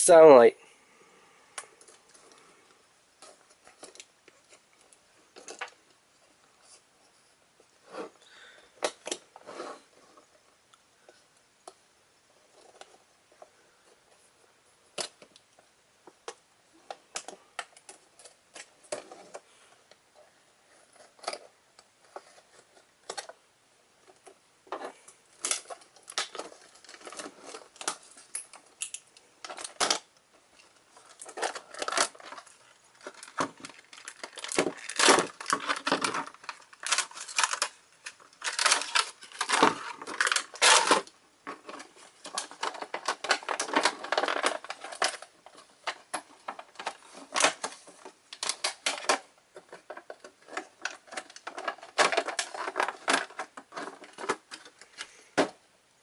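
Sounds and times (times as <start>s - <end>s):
plastic crinkling: 24.0s - 55.6s
packaging clicks and tearing: 31.0s - 55.5s.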